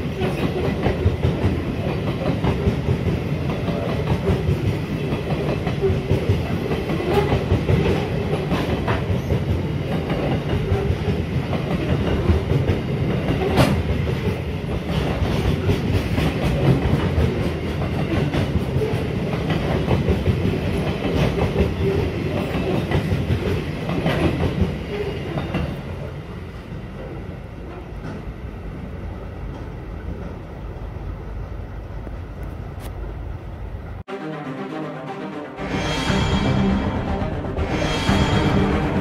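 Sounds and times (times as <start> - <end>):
freight train wheels clattering: 0.0 - 25.8.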